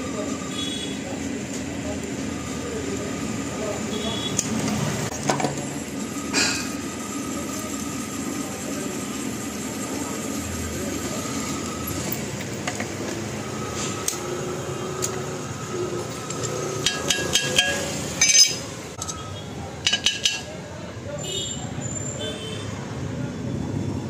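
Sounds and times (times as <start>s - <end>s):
drill press cutting steel: 15.0s - 19.2s
sharp metallic clinks: 16.3s - 20.5s.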